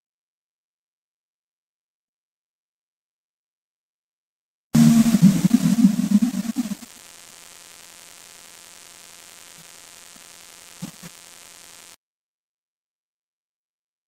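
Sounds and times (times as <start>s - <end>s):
music with drums: 4.8s - 6.9s
faint electrical hum and hiss: 4.8s - 12.0s.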